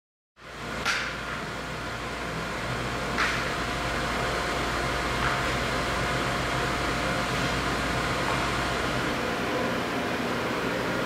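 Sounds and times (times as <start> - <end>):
motor and hydraulic pump hum: 0.4 - 11.0.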